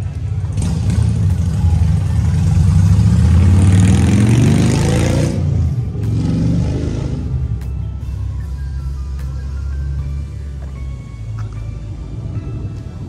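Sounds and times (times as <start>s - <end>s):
car engine revving: 0.4s - 7.6s.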